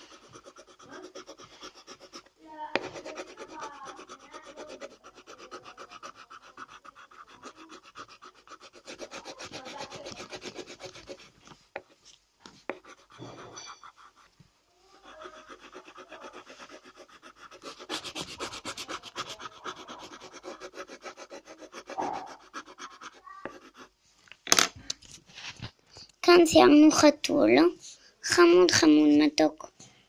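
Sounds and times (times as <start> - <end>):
pencil shading on paper: 0.0 - 24.0.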